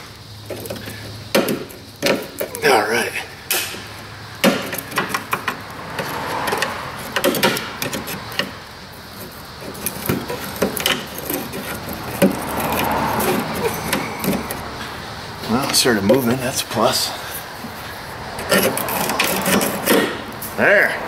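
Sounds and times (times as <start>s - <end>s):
metal pick clicking and scraping: 4.4s - 14.6s, 18.4s - 20.2s.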